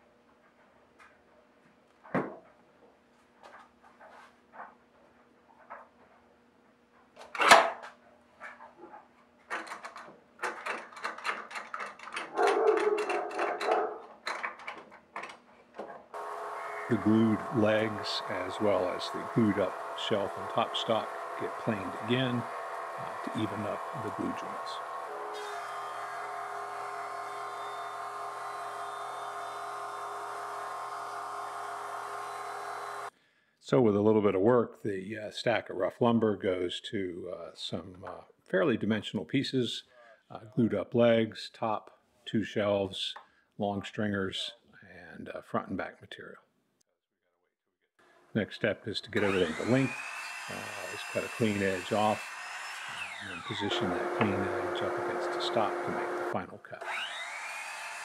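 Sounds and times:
clamps clicking and clattering: 9.4s - 15.4s
thickness planer whining hum: 16.2s - 33.1s, 49.2s - 58.0s.

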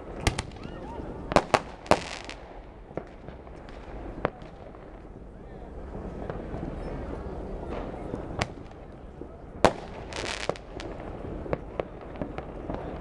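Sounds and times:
fireworks bangs: 0.0s - 5.2s, 5.8s - 13.0s
fireworks hissing crackle: 1.2s - 5.1s, 9.6s - 13.0s.

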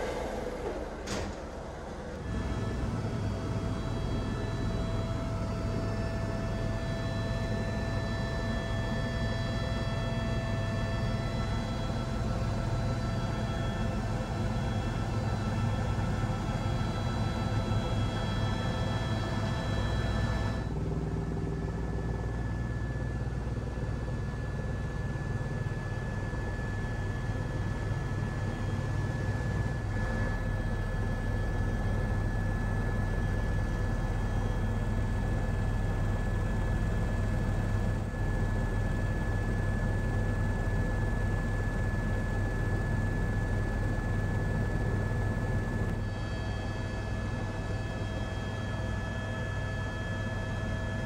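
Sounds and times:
helicopter rotor drone: 0.0s - 51.0s.

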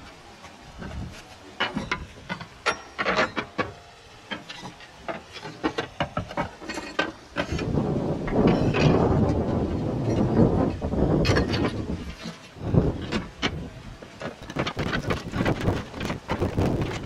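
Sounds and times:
clay roof tiles clinking: 0.8s - 7.8s, 11.2s - 17.0s.

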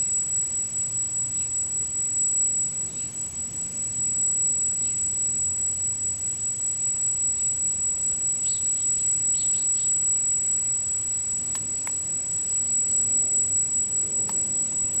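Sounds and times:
faint chirps: 0.0s - 15.0s
gimbal motors whining: 0.0s - 15.0s
sharp clicks: 11.5s - 12.0s.

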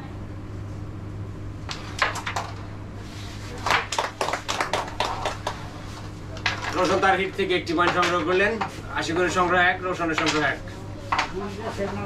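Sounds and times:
steady low hum: 0.0s - 12.0s
people clapping: 3.5s - 6.8s.

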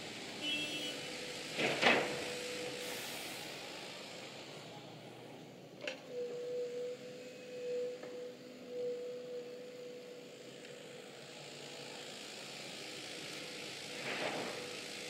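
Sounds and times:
hydraulic whine: 0.0s - 15.0s.

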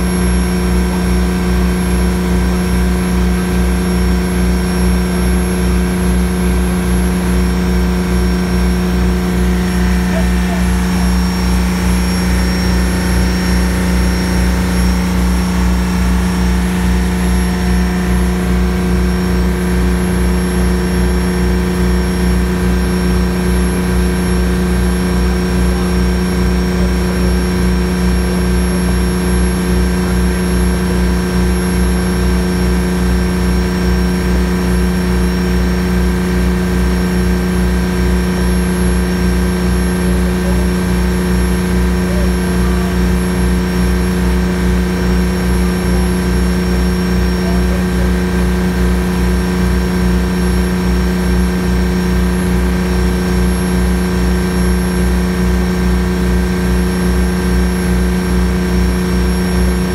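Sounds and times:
boat engine droning: 0.0s - 59.9s
water rushing along hull: 0.0s - 59.9s.

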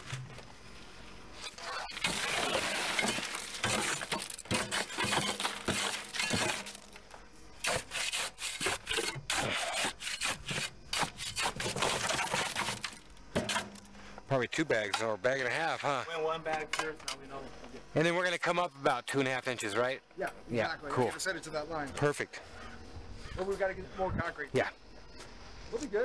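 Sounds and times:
concrete pouring hiss: 0.0s - 14.3s
concrete scraping strokes: 0.8s - 13.8s.

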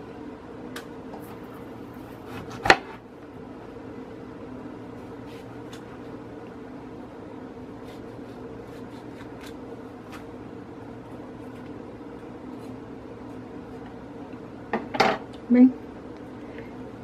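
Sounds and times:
knife cutting on wooden board: 2.2s - 3.0s.

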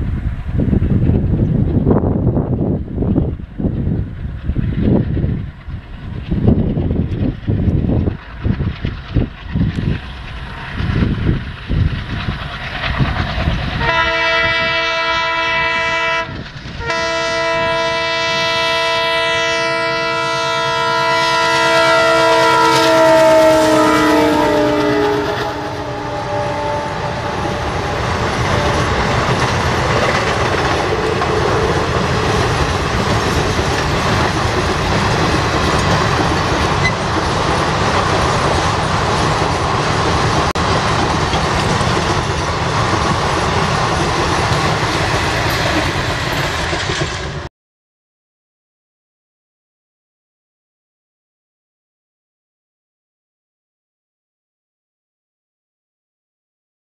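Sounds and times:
train coaches rumbling: 0.0s - 47.5s
wheels clacking over rail joints: 3.2s - 14.2s, 24.5s - 47.5s
locomotive horn blast: 13.8s - 29.3s.

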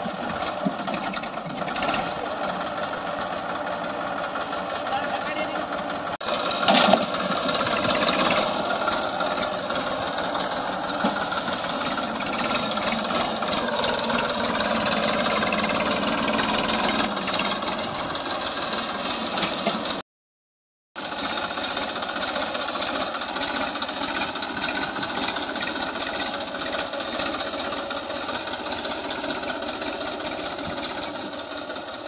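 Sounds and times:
tractor diesel engine running: 0.0s - 20.0s, 21.0s - 32.0s.

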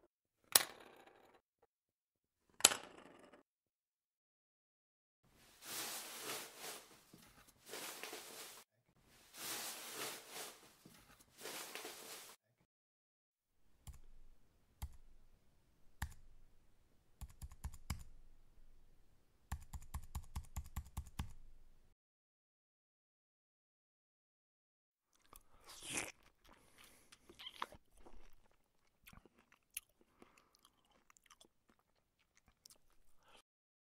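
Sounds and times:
keyboard typing: 17.2s - 18.1s, 19.5s - 21.4s.

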